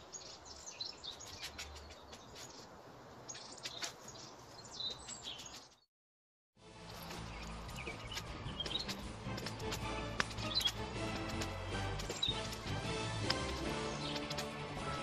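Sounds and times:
small birds chirping: 0:00.0 - 0:05.9, 0:06.8 - 0:15.0
low background music: 0:06.6 - 0:15.0.

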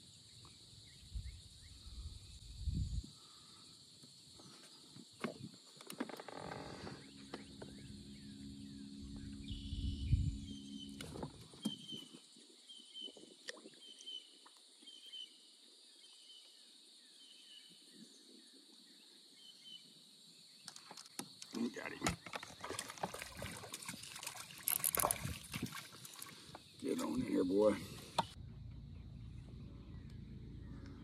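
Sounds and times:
bird chirping: 0:06.7 - 0:22.8
low mechanical hum: 0:07.0 - 0:11.6, 0:28.3 - 0:31.0
high-pitched drone: 0:07.0 - 0:11.8.

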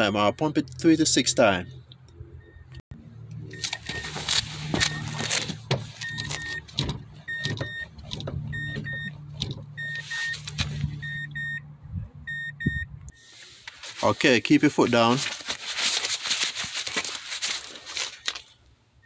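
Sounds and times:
car warning chime beeping: 0:00.0 - 0:02.8, 0:03.4 - 0:05.3, 0:06.0 - 0:11.7, 0:12.3 - 0:13.2.

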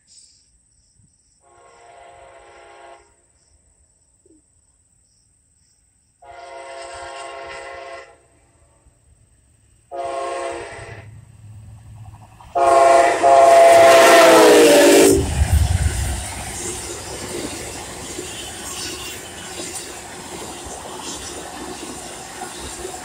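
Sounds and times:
locomotive air horn blasts: 0:01.4 - 0:03.2, 0:06.2 - 0:08.3, 0:09.9 - 0:11.1, 0:12.5 - 0:15.3
train wheels on rails: 0:08.5 - 0:23.0
diesel engine rumble: 0:15.2 - 0:19.4.

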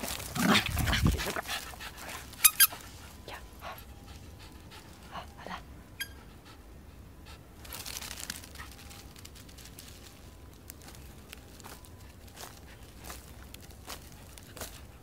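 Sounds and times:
dog panting: 0:00.0 - 0:07.6.

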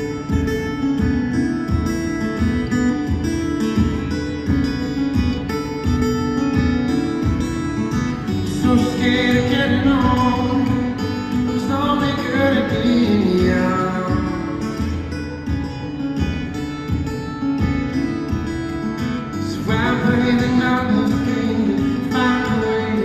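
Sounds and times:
acoustic guitar through sound system: 0:00.0 - 0:23.0.

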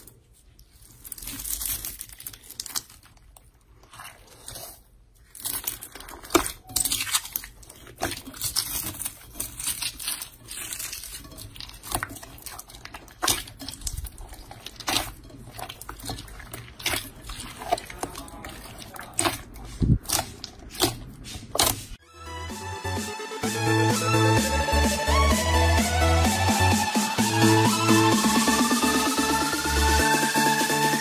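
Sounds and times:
slime crackling and popping: 0:00.0 - 0:22.0.

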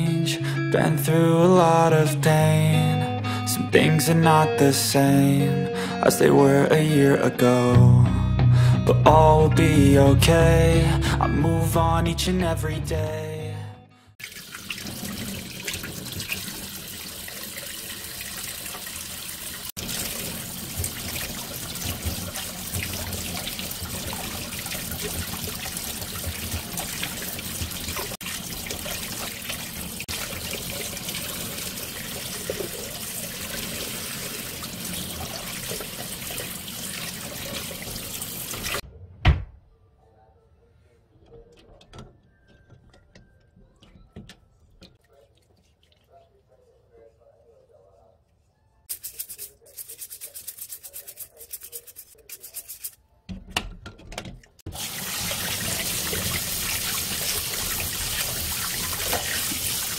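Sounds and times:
faucet water splashing in sink: 0:14.2 - 0:38.8, 0:54.5 - 0:59.9
eggs rubbing and clicking: 0:48.9 - 0:53.0.

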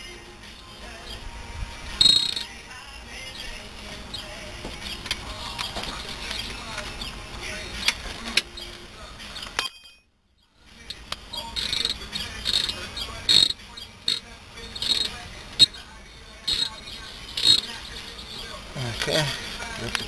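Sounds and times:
wrenches clinking on bolts: 0:02.0 - 0:02.5, 0:11.4 - 0:15.8, 0:16.5 - 0:19.3
insects chirping: 0:02.0 - 0:08.8, 0:10.8 - 0:20.0.

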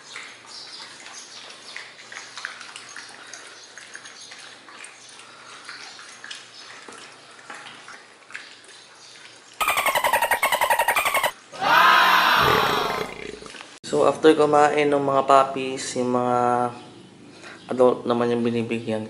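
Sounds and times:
puppies licking and chewing: 0:00.0 - 0:09.6.

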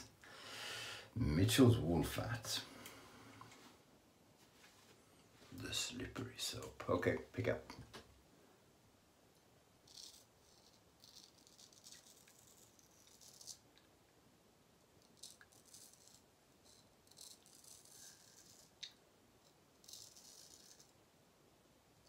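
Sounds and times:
straight razor scraping stubble: 0:09.9 - 0:13.6, 0:15.2 - 0:18.8.

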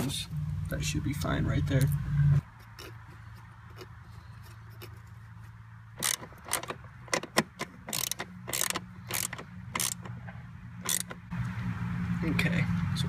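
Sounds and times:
screw tightened with hand tool: 0:06.0 - 0:10.2, 0:10.8 - 0:11.2.

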